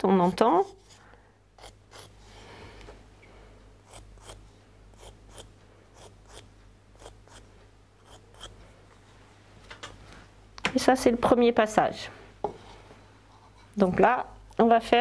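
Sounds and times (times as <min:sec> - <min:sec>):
tip scratching clay bowl: 0:00.0 - 0:01.0, 0:01.6 - 0:02.2, 0:03.8 - 0:04.4, 0:05.0 - 0:08.6.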